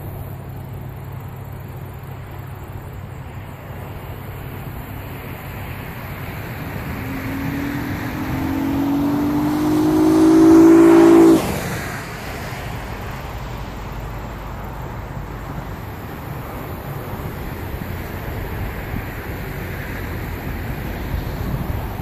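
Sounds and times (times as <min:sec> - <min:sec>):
car engine accelerating past: 0:05.1 - 0:13.5.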